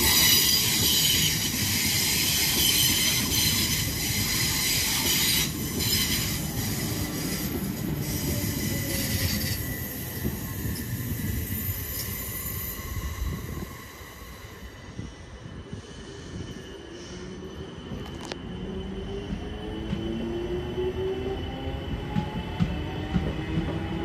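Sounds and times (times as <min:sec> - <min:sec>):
high-pitched wheel squeal: 0:00.0 - 0:13.7
train wheels rumbling on rail: 0:00.0 - 0:24.0.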